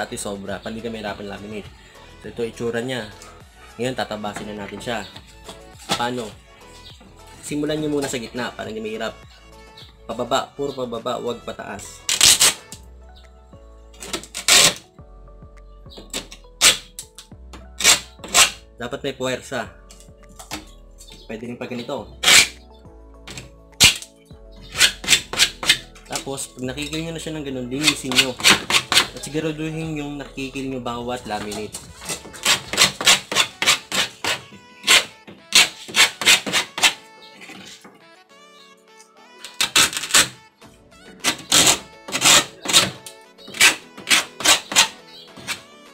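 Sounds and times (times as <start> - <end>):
metal file rasping on laminate: 32.1 - 37.0, 43.6 - 45.6.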